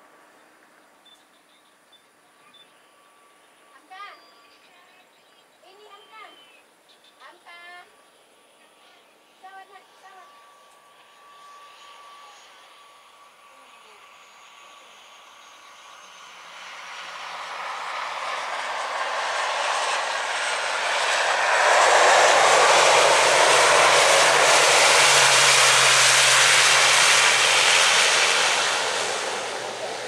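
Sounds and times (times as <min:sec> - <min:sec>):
turboprop engines and propellers: 0:07.5 - 0:30.0.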